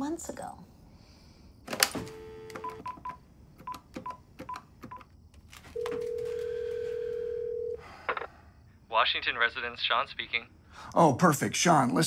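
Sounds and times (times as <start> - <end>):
keypad beeps: 2.0 - 5.1
dial tone: 5.8 - 7.8.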